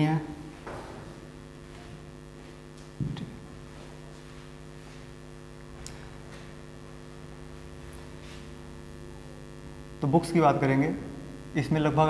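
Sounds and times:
electrical mains hum: 0.0s - 12.0s.

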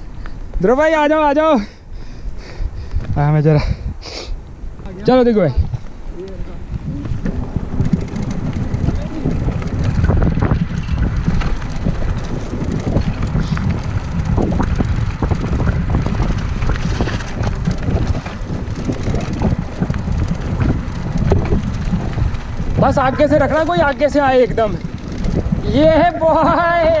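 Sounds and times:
bike tyres rumbling: 0.0s - 27.0s
wind buffeting microphone: 0.0s - 27.0s
bike rattling over bumps: 4.7s - 27.0s.

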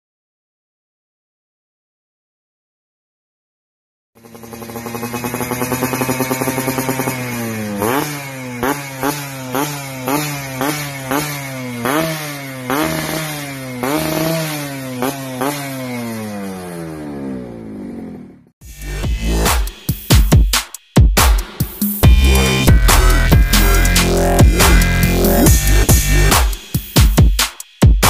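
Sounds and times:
two-stroke motorcycle engine revving: 4.2s - 20.4s, 21.5s - 27.3s.

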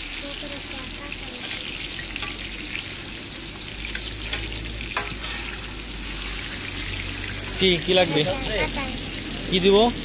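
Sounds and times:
chicken sizzling on griddle: 0.0s - 10.0s
metal spatulas scraping and clinking: 3.9s - 5.6s.

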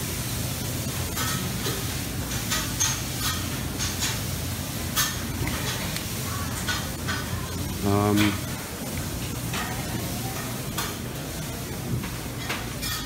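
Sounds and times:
serving tongs and dishes clinking: 1.1s - 4.2s, 4.9s - 8.6s, 12.3s - 13.0s.

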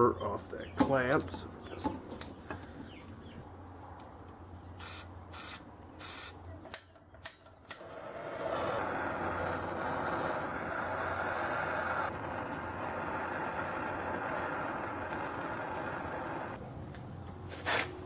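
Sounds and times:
gas torch burning: 4.7s - 16.6s
short hisses: 4.8s - 6.4s.

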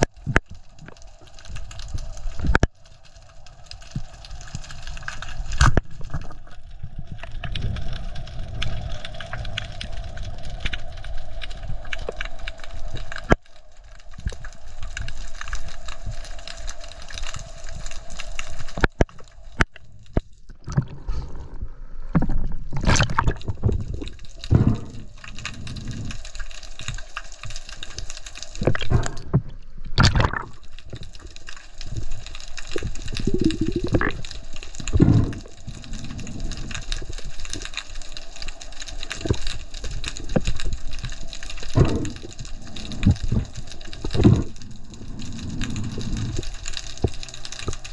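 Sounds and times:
muffled underwater rumble: 0.0s - 47.9s
water sloshing and splashing: 18.5s - 47.9s
underwater clicks: 22.1s - 47.9s.

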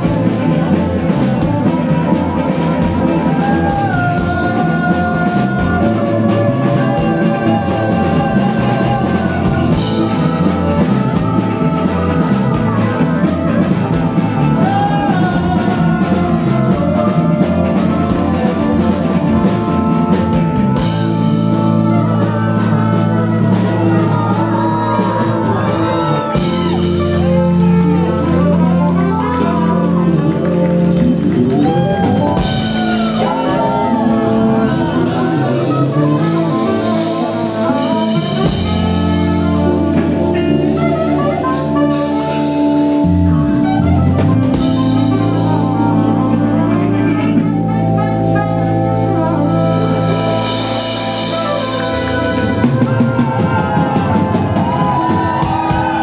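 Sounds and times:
live rock band playing: 0.0s - 56.0s
sliding lead guitar lines: 0.0s - 56.0s.

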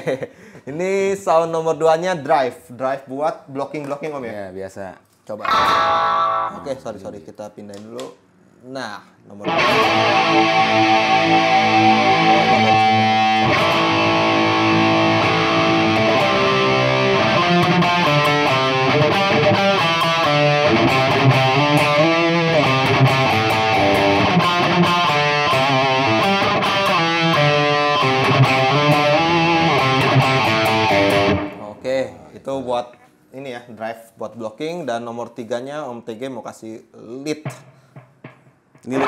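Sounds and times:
distorted electric guitar chords: 5.5s - 6.6s, 9.5s - 31.7s, 38.2s - 39.0s.

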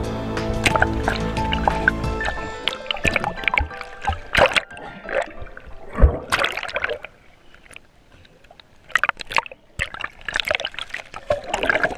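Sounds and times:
water splashing and sloshing: 0.4s - 11.9s.

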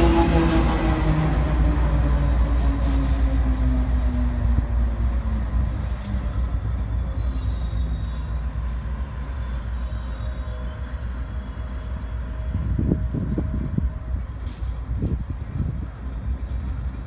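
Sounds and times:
diesel locomotive rumble: 0.0s - 17.0s
wheels squealing: 1.8s - 12.3s.

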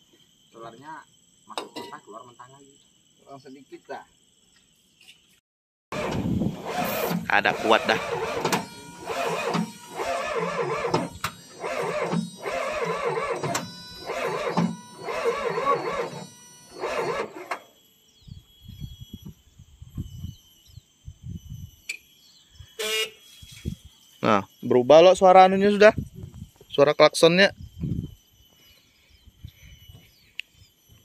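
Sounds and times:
diesel engine starter cranking: 5.9s - 17.6s.

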